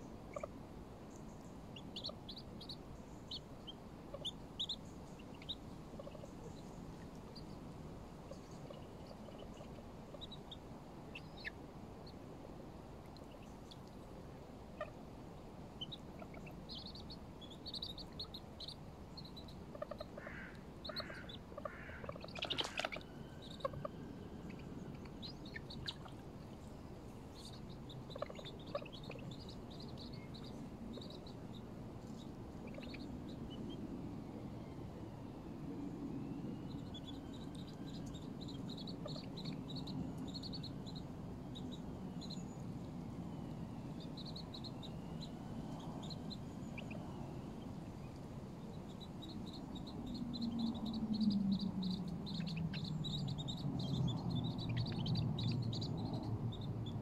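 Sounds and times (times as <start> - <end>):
birds chirping: 0.0 - 12.4, 13.0 - 57.0
low steady rumble: 0.0 - 57.0
loud bird calls: 15.8 - 33.8.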